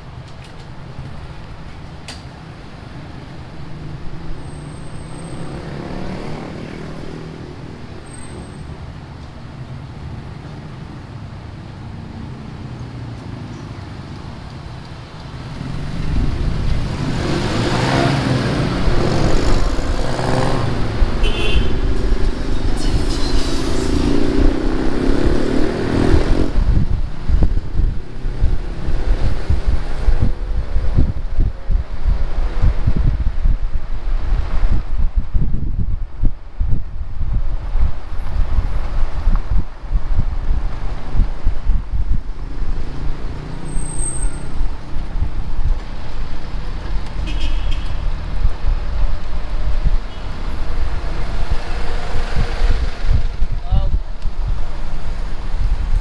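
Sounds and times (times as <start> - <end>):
vehicle engine rumble: 0.0 - 56.0
wind buffeting microphone: 15.8 - 43.5, 44.2 - 56.0.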